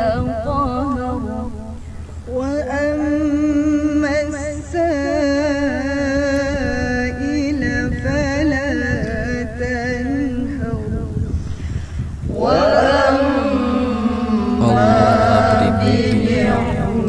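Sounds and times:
woman reciting melodically: 0.0 - 17.0.

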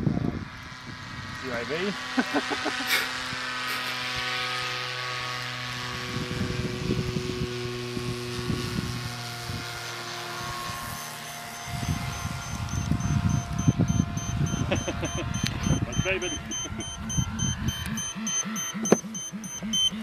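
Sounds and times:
model airplane motor droning: 0.0 - 20.0.

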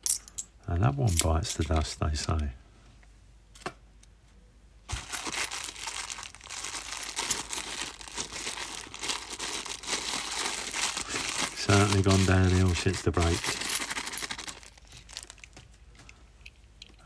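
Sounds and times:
plastic bag crinkling and tearing: 4.9 - 15.8.

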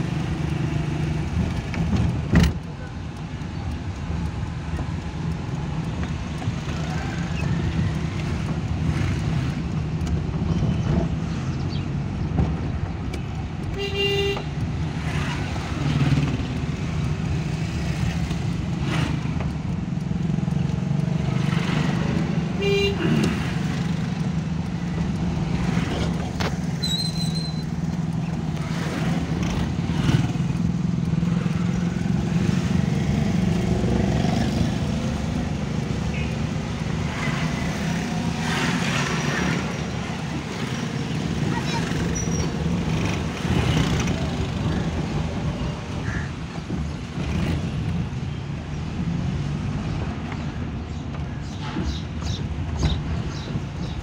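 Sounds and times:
car engine drone and road noise: 0.0 - 54.0
car horn toots: 13.7 - 14.6, 22.6 - 23.3.

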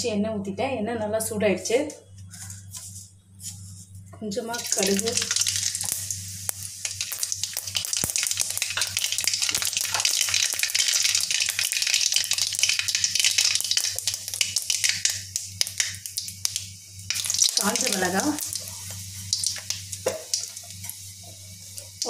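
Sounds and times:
seeds sizzling and popping in oil: 4.5 - 22.0.

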